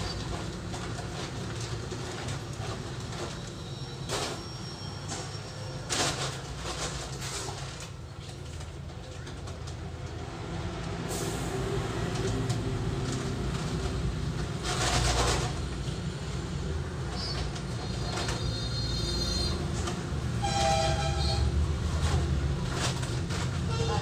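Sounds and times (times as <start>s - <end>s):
bucket scraping concrete floor: 11.1s - 15.8s, 17.1s - 24.0s.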